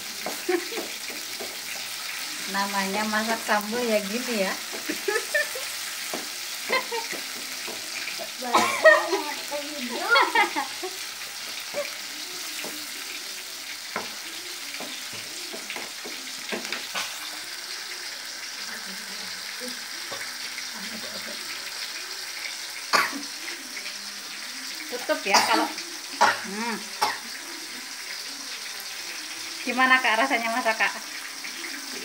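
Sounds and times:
food sizzling in a frying pan: 0.0 - 32.0
spatula tapping and scraping pan: 0.1 - 2.1, 6.0 - 8.2, 13.9 - 17.2.

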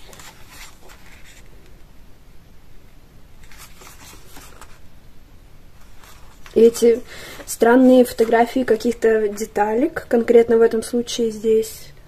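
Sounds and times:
paper pages rustling: 0.0 - 1.8, 3.4 - 4.8, 5.8 - 9.6.

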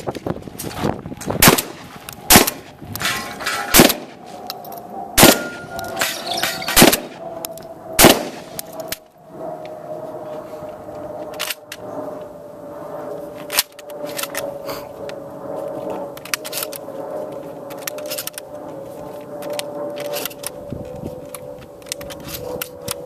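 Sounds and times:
steady hum: 0.0 - 23.0
sharp metallic clack: 2.3 - 4.0
shotgun shells loading clicks: 11.3 - 11.7, 16.2 - 16.8, 17.7 - 18.4, 19.4 - 20.6, 21.2 - 23.0.

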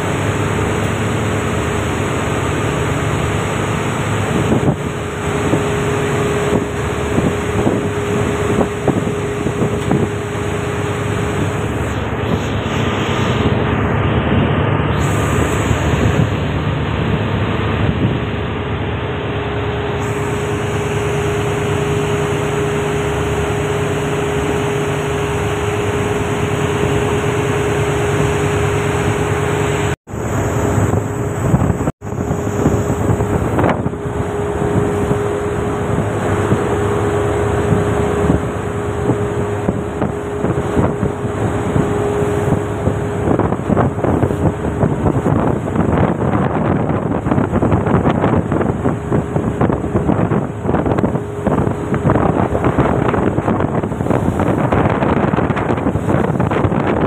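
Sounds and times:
ship engine drone: 0.0 - 57.0
wind buffeting microphone: 0.0 - 57.0.

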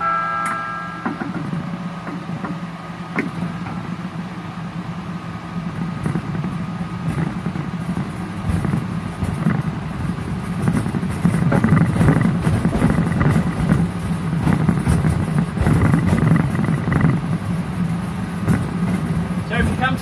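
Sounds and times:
track clicks and rattles: 0.4 - 4.2, 5.6 - 20.0
miniature train rolling on track: 5.8 - 20.0.

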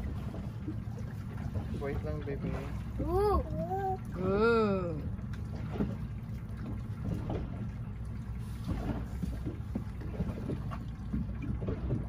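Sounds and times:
boat engine rumble: 0.0 - 12.0
faint light knocks or splashes: 5.0 - 12.0.

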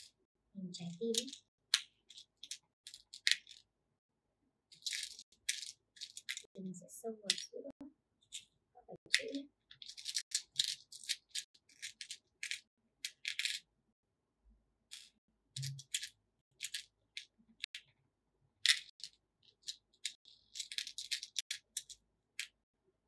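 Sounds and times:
plastic beads clicking and rattling: 0.8 - 3.6, 4.7 - 6.6, 7.2 - 7.6, 8.2 - 13.6, 14.9 - 17.9, 18.6 - 22.6.

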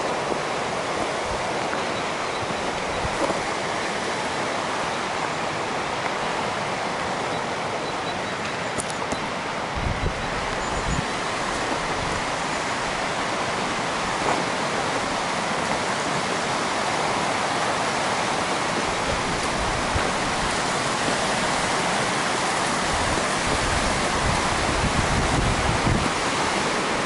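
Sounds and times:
wind buffeting microphone: 0.0 - 3.8, 9.6 - 16.5, 18.2 - 27.0
flowing water rushing: 0.0 - 27.0.

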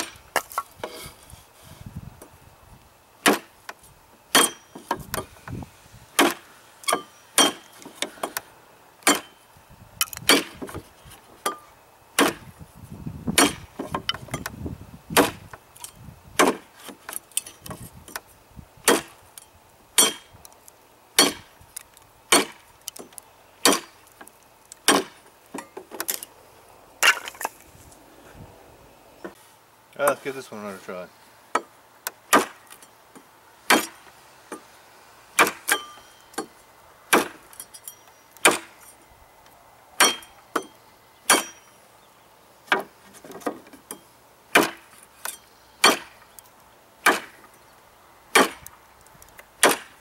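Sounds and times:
knife chopping wood: 3.2 - 3.5, 6.2 - 8.4, 9.0 - 9.4, 10.0 - 10.8, 12.2 - 12.5, 13.3 - 14.5, 15.1 - 15.5, 16.4 - 17.0, 18.8 - 19.2, 21.2 - 21.5, 22.3 - 24.0, 24.8 - 26.2, 32.3 - 32.8, 33.7 - 34.0, 35.4 - 36.5, 37.1 - 37.4, 38.4 - 38.8, 44.6 - 45.0, 45.8 - 46.2, 47.0 - 47.4, 48.4 - 48.7, 49.6 - 50.0.

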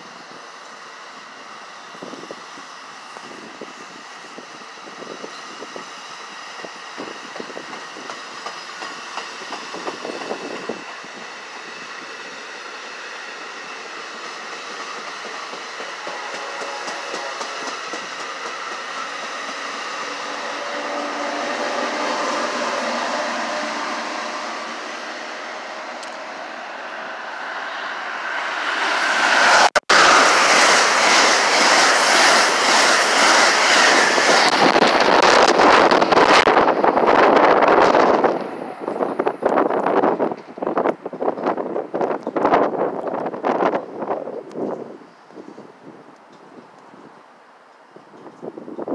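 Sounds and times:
train passing at speed: 0.0 - 48.9
train rumble: 1.2 - 47.0
train wheels clicking over rail joints: 6.6 - 11.0, 13.8 - 20.4.

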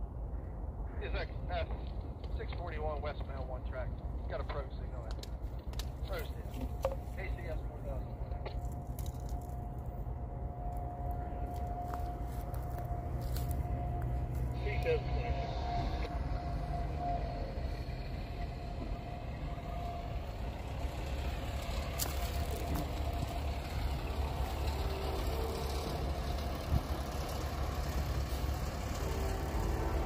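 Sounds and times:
diesel truck engines rumbling: 0.0 - 30.0.

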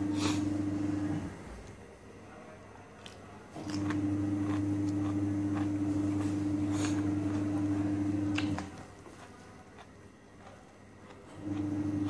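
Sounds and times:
steady low hum: 0.0 - 12.0
person chewing raw onion: 3.0 - 12.0.

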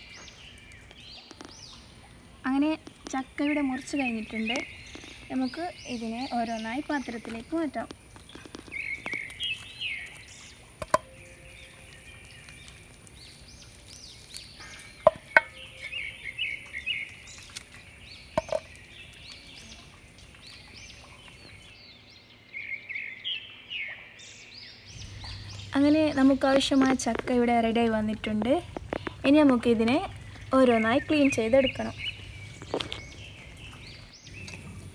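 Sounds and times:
birds calling: 0.0 - 34.9
fruit knocking into metal bowl: 10.8 - 11.1, 15.0 - 15.6, 18.4 - 18.7.

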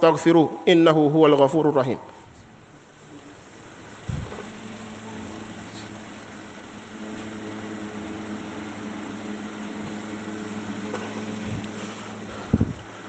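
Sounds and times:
faint hiss: 0.0 - 13.0
machine hum: 0.0 - 13.0
low thumps: 4.0 - 4.6.

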